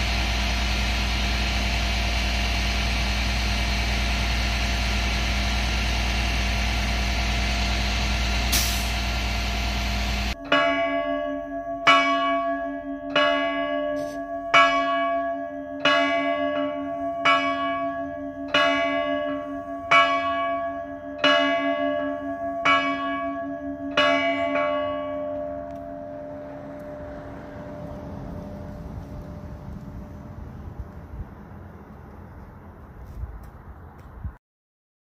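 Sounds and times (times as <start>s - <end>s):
church bell tolling: 9.0s - 30.2s.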